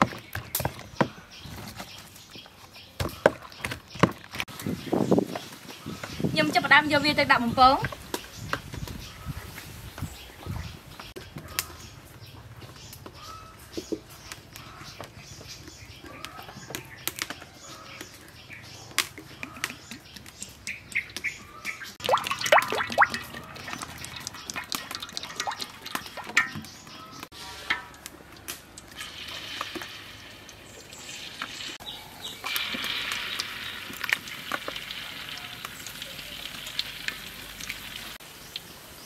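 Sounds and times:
birds chirping: 0.0s - 39.0s
cooking knocks and clatter: 22.0s - 31.8s
hot oil sizzling: 22.0s - 39.0s.

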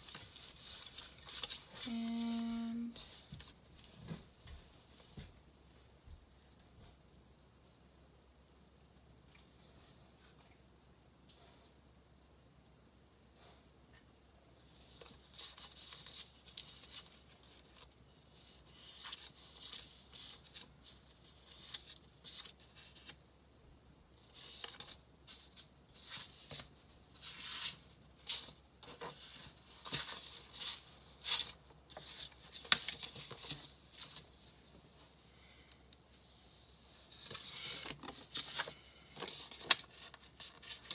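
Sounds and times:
paper rustling and scratching: 0.0s - 3.9s, 14.8s - 23.2s, 24.2s - 34.4s, 37.1s - 40.9s.

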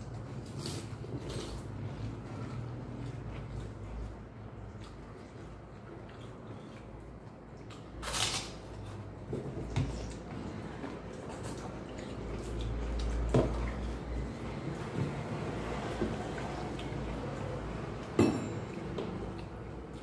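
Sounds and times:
people eating: 0.0s - 20.0s.

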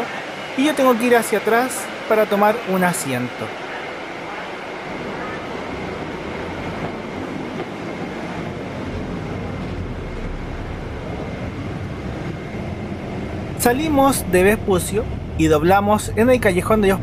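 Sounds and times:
bus engine and road rumble: 8.3s - 17.0s.

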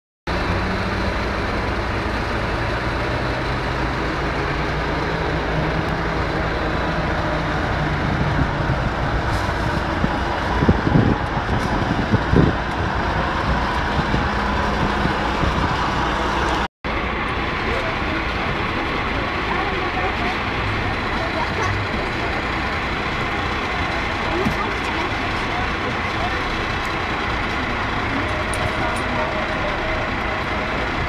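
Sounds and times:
street traffic: 0.3s - 31.0s
vehicle engines running: 0.3s - 31.0s.

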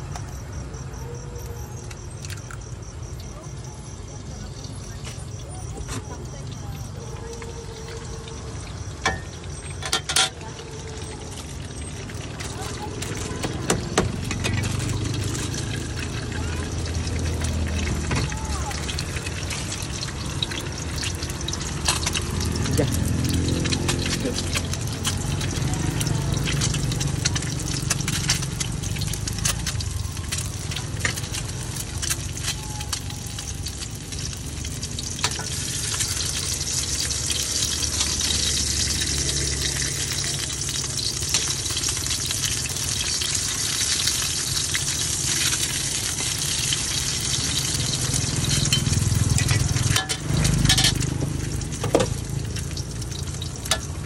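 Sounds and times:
egg sizzling in hot oil: 0.0s - 54.0s.

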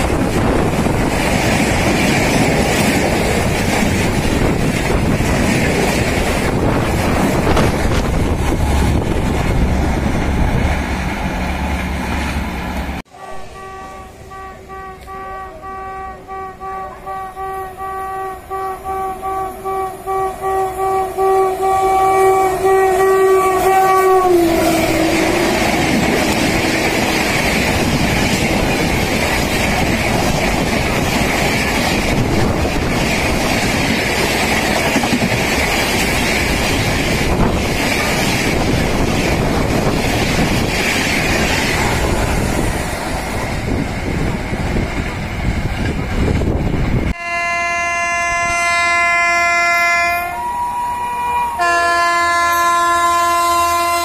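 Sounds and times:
train coaches rumbling and clattering: 0.0s - 54.0s
train horn: 13.1s - 27.6s, 47.1s - 54.0s.

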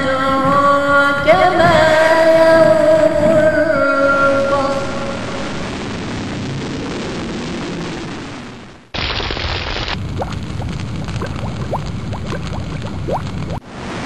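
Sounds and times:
deep explosion rumble: 4.5s - 14.0s
loud blast: 4.9s - 12.1s
fire crackles: 5.2s - 14.0s.

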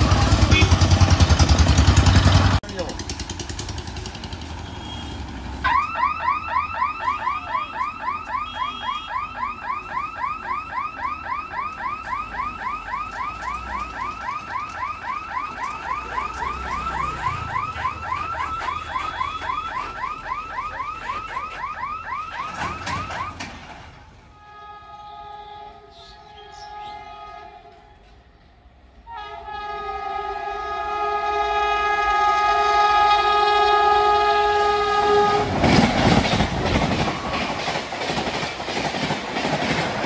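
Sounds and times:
truck engine rumble: 0.0s - 5.6s.

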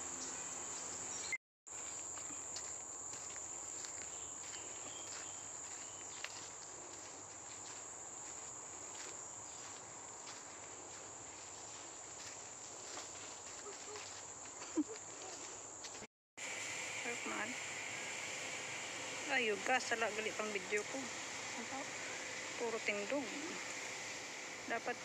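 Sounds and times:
insects droning: 0.0s - 25.0s
footsteps on dirt and leaves: 0.7s - 16.1s.

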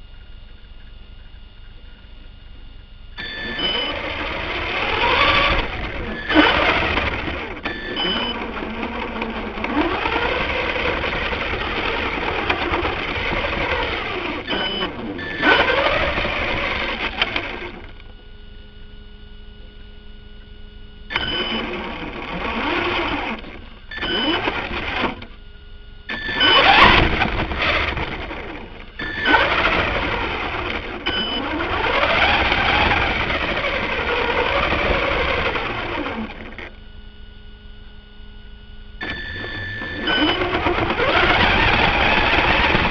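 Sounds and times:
electric motor whining: 2.0s - 42.9s.

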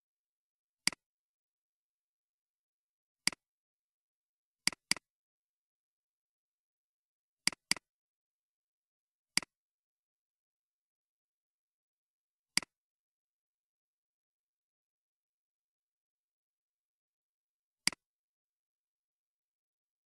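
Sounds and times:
computer mouse clicks: 0.8s - 1.0s, 3.2s - 3.4s, 4.7s - 5.1s, 7.5s - 7.9s, 17.8s - 18.0s.

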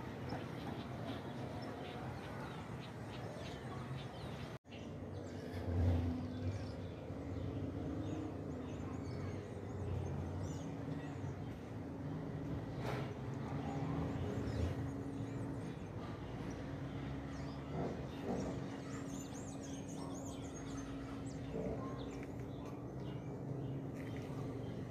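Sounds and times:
distant traffic rumble: 0.0s - 24.9s
faint birds chirping: 0.0s - 24.9s.

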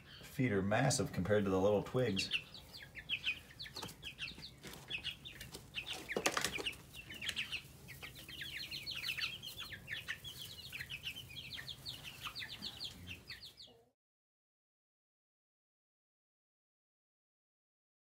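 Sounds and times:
chicks peeping: 0.0s - 13.9s.

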